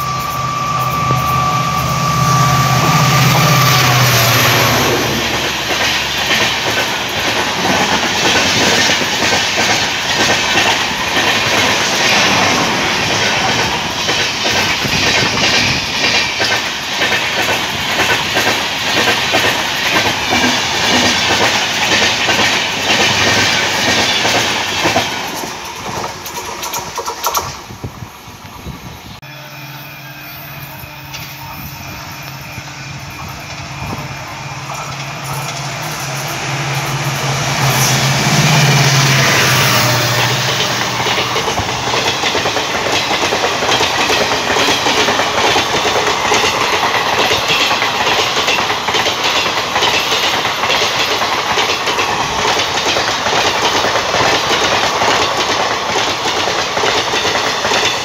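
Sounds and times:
train horn blast: 0.0 - 5.4, 29.2 - 41.5
diesel locomotive engine: 0.0 - 58.0
wheels clattering over rail joints: 4.3 - 27.7, 34.7 - 58.0.

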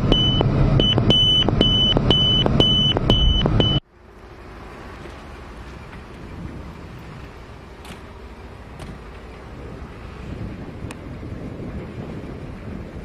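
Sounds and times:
high warning tone beeping: 0.0 - 3.8
distant jet and wind noise: 0.0 - 13.0.

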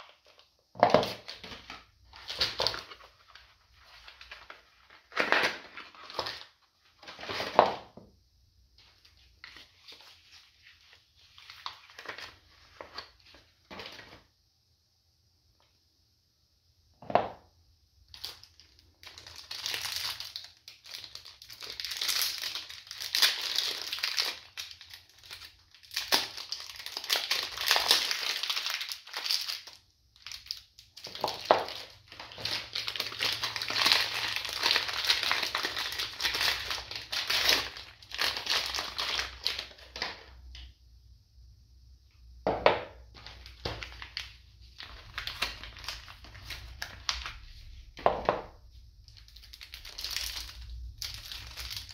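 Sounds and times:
wrappers crinkling: 0.0 - 7.6, 8.8 - 13.4, 18.1 - 40.4, 43.1 - 48.0, 48.6 - 51.9
soap bars knocking on table: 42.4 - 43.0.

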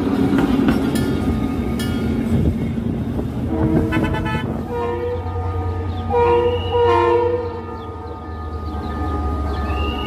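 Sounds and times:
train horn: 3.4 - 8.7.

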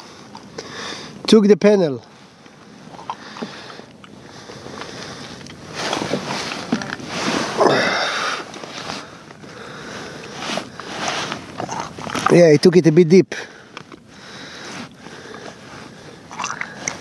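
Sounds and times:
person breathing and sniffing: 7.1 - 11.6, 13.4 - 17.0.

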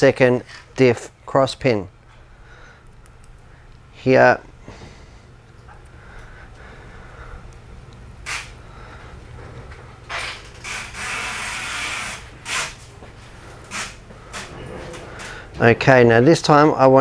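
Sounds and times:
steady low hum: 0.0 - 17.0
rubbing hiss: 8.3 - 8.6, 10.6 - 12.8.

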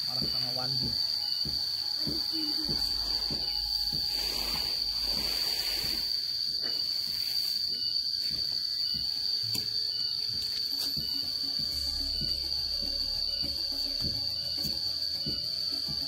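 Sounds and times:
high-pitched insect drone: 0.0 - 16.0
rake scraping through rice grain: 2.8 - 7.6.

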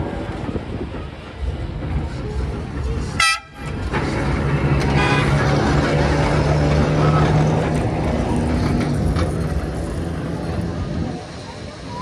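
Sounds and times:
tram running with low hum: 0.0 - 12.0.

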